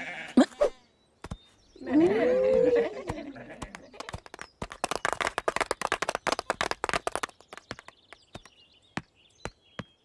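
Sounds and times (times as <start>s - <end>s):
faint bird chirps: 0.3s - 4.6s.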